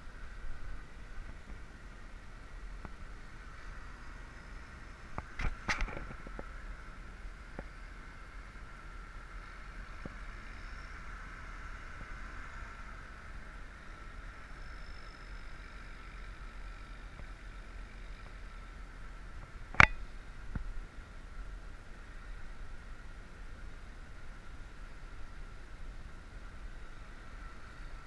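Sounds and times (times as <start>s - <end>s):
sharp click: 19.8s - 20.0s.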